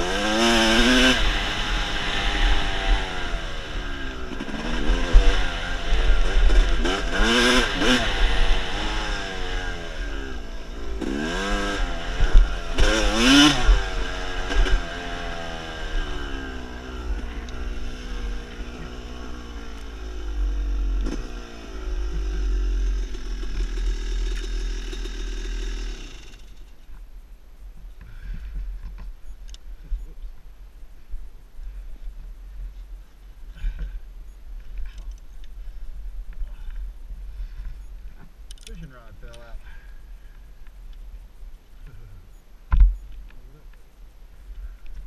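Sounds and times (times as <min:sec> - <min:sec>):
dirt bike engine revving: 0:00.0 - 0:26.7.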